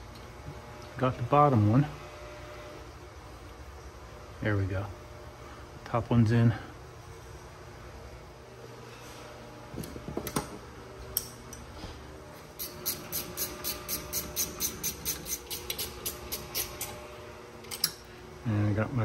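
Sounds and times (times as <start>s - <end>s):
hand ratchet clicking: 12.6s - 17.0s.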